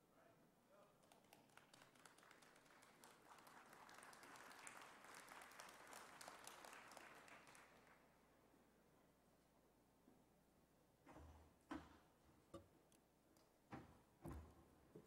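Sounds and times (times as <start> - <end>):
faint audience applause: 0.9 - 8.5.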